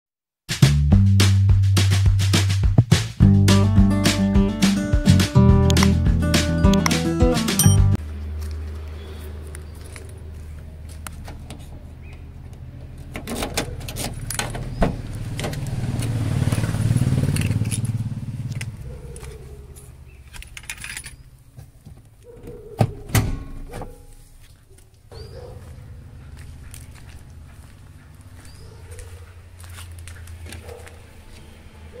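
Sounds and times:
handling clicks and jingles: 7.5 - 8.0, 12.8 - 14.8, 17.2 - 22.7.

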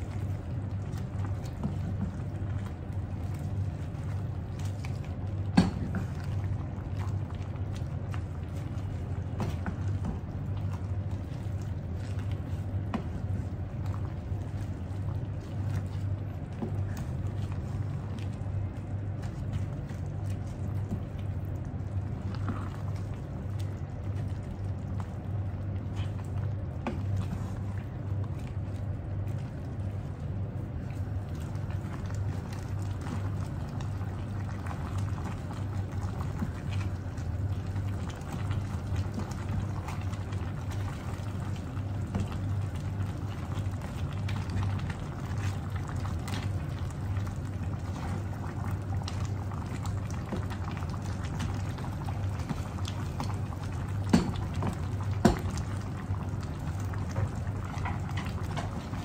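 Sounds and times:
steady low hum: 0.0 - 59.0
stew bubbling in a pan: 0.0 - 59.0
wooden spatula stirring: 0.0 - 59.0.

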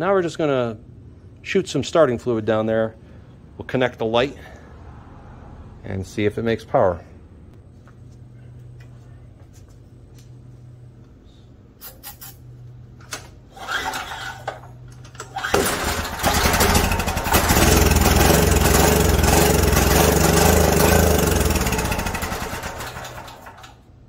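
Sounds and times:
generator engine running: 13.5 - 23.9.

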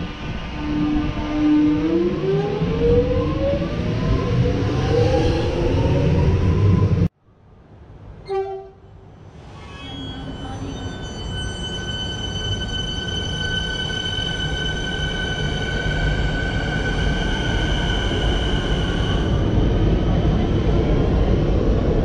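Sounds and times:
high-pitched train whine: 8.2 - 22.0
electric train passing: 9.0 - 22.0.

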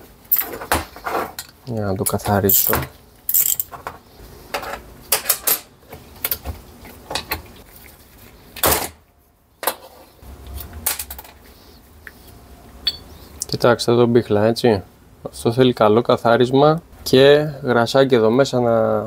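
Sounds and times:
metal parts clicking and clinking: 1.4 - 3.9.

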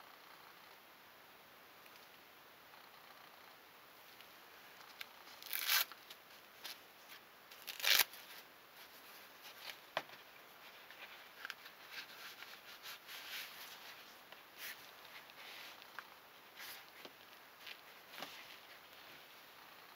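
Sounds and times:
fabric rustling: 5.2 - 19.5
hook-and-loop straps tearing open: 5.4 - 6.0, 7.5 - 8.2.

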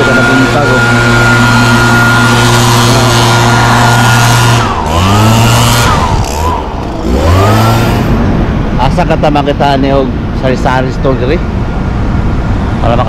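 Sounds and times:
leaf blower running: 0.0 - 8.8.

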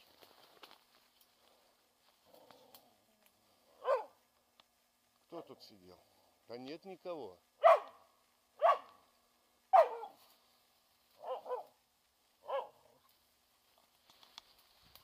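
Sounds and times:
faint rustling: 0.0 - 6.6, 8.7 - 11.9, 12.5 - 15.0
dog barking: 3.8 - 4.2, 7.6 - 8.0, 8.6 - 9.0, 9.7 - 10.2, 11.2 - 11.8, 12.4 - 13.0.

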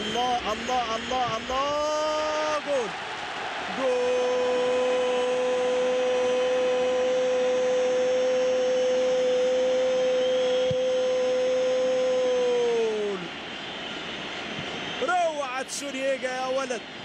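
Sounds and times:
commentator shouting goal: 0.0 - 2.9, 15.0 - 16.8
crowd noise: 0.0 - 7.0, 13.1 - 17.0.

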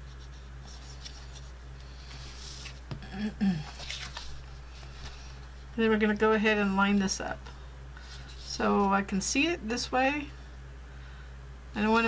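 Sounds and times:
cardstock rustling and sliding: 3.6 - 5.4.

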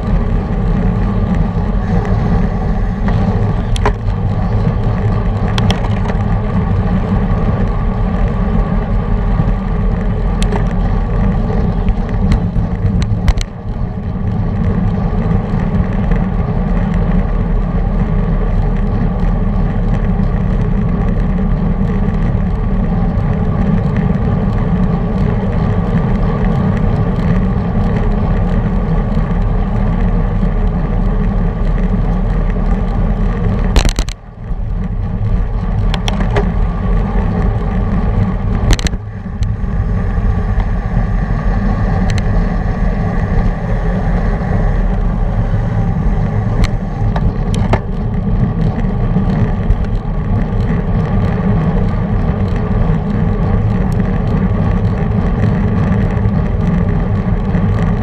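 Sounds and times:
bicycle tyre noise on asphalt: 0.0 - 58.0
wind rushing over microphone: 0.0 - 58.0.

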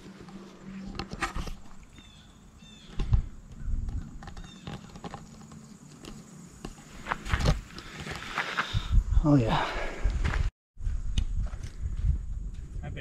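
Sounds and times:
wind gusting on microphone: 8.6 - 13.0.

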